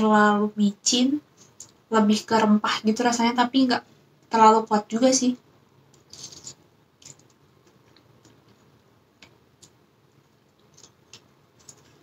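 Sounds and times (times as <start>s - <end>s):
quiet chewing: 5.9s - 12.0s.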